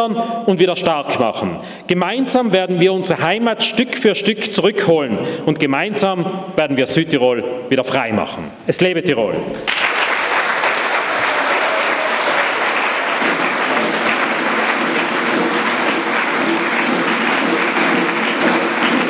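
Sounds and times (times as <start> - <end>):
crowd applauding: 9.6 - 19.0.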